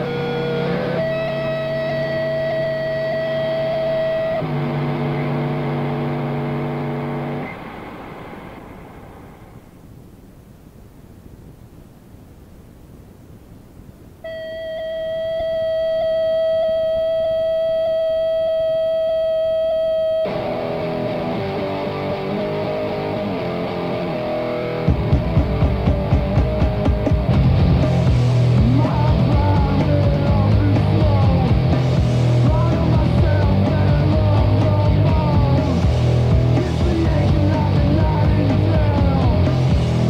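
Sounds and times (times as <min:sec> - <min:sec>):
electric guitar: 0:00.0 - 0:10.0, 0:14.2 - 0:40.0
tape hiss: 0:00.0 - 0:40.0
drums and bass fast beat: 0:21.7 - 0:40.0.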